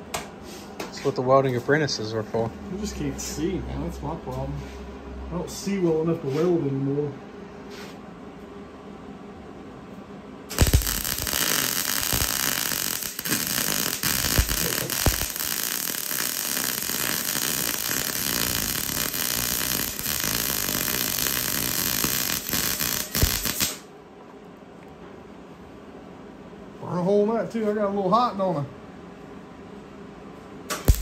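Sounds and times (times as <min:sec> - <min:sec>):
welding arc crackling hiss: 0:10.5 - 0:23.9, 0:30.7 - 0:31.0.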